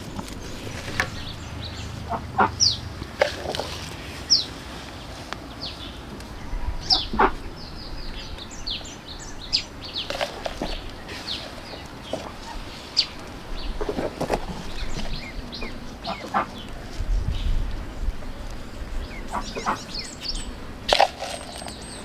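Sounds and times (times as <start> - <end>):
chickens clucking: 0.0 - 4.4, 6.1 - 7.6, 9.5 - 17.0, 18.4 - 21.8.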